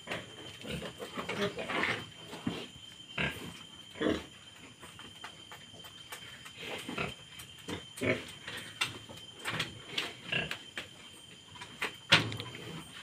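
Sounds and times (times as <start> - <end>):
pigs grunting and squealing: 0.1 - 2.2.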